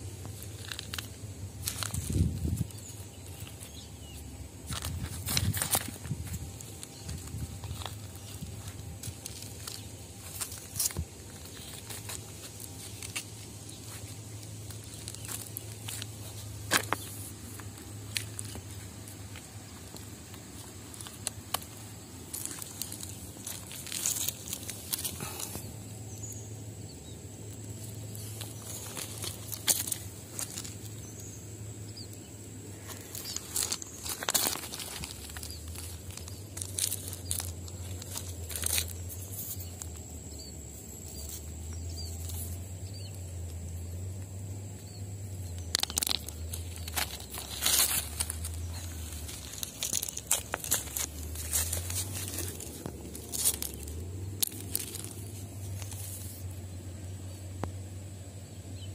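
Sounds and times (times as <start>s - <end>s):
footsteps crunching on gravel: 0.1s - 26.0s, 27.7s - 31.3s, 32.7s - 40.2s, 44.9s - 56.6s
pebbles clicking together: 0.2s - 3.8s, 4.6s - 26.3s, 32.8s - 40.1s, 45.3s - 56.6s.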